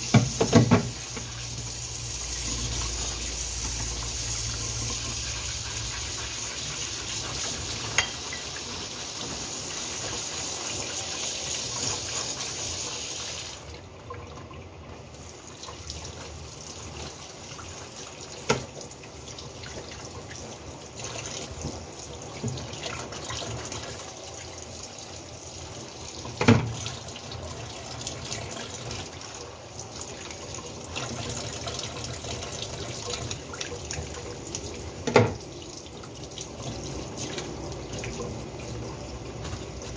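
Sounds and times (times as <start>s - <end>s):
tap water running into sink: 0.0s - 39.9s
sharp knocks against sink: 0.1s - 0.9s.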